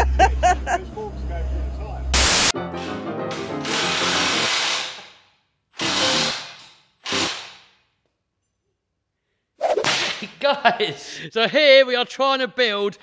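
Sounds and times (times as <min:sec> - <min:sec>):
power tool running in bursts: 0:03.6 - 0:05.0, 0:05.8 - 0:06.4.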